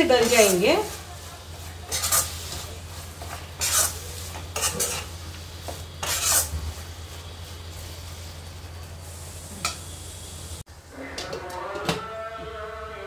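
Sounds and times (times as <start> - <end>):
spoon scraping a pan: 0.0 - 6.9.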